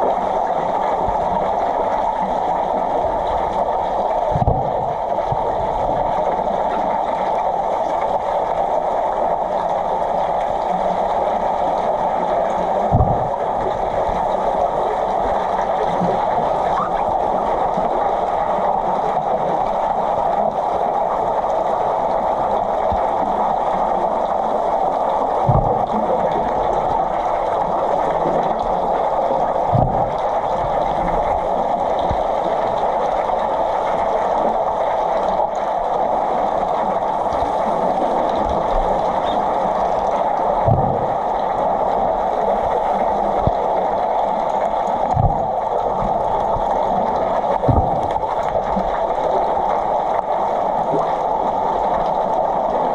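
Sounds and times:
muffled underwater rushing: 0:00.0 - 0:52.9
short low thuds: 0:13.0 - 0:13.3.

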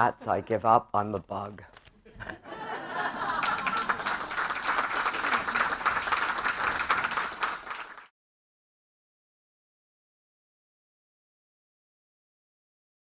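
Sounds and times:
audience applauding: 0:02.5 - 0:08.1.

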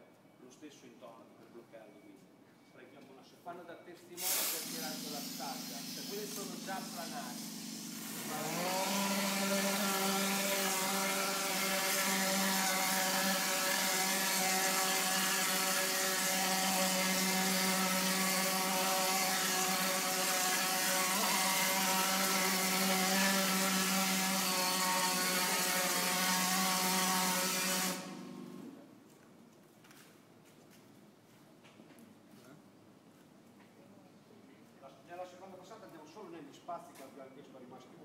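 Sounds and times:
hiss of plaster spraying: 0:04.2 - 0:08.6.

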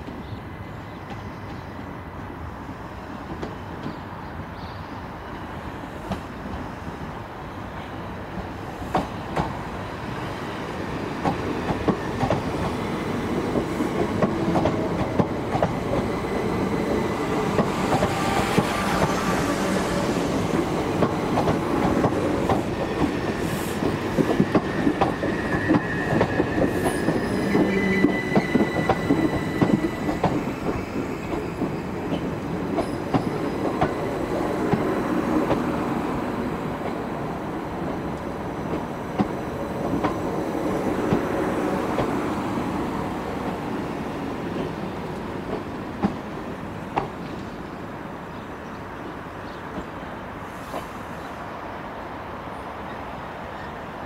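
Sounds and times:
electric train running slowly: 0:10.8 - 0:47.7
train wheels clicking over rail joints: 0:11.2 - 0:16.2
faint high wheel squeal: 0:24.6 - 0:30.2.

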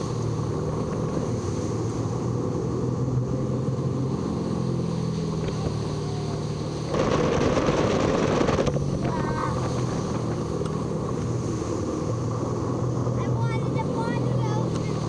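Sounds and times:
motorboat engine humming: 0:00.0 - 0:15.0
water noise from hull: 0:00.0 - 0:15.0
wind rushing over microphone: 0:04.8 - 0:15.0.

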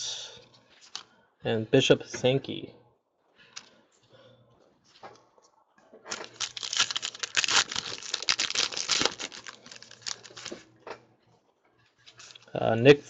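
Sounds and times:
wrapper tearing and crinkling: 0:06.1 - 0:10.6, 0:12.2 - 0:12.5.

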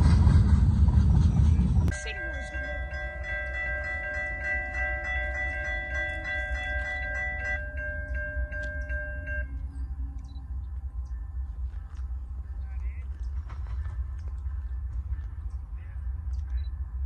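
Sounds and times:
steady low rumble: 0:00.0 - 0:17.0
crossing warning bells dinging: 0:01.9 - 0:12.6.

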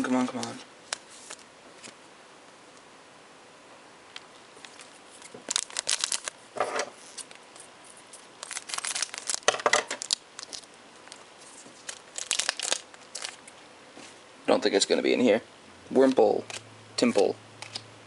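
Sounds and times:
foil wrapper crinkling and tearing: 0:04.6 - 0:06.4, 0:07.0 - 0:13.6.

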